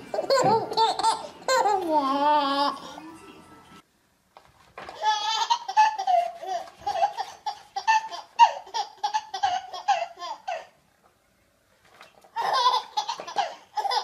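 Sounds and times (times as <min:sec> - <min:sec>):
baby laughing: 0:00.1 - 0:02.9, 0:04.9 - 0:10.8, 0:12.3 - 0:14.0.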